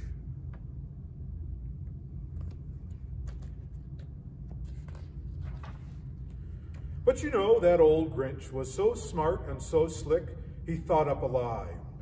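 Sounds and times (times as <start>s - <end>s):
low room rumble: 0.0s - 12.0s
book page rustle: 2.3s - 6.9s.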